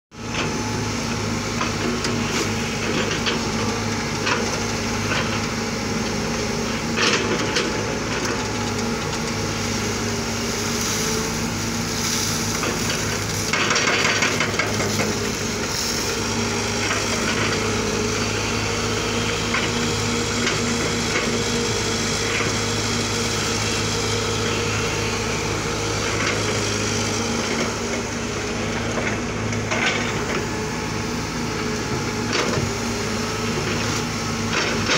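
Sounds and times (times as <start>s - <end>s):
excavator diesel engine: 0.1s - 34.9s.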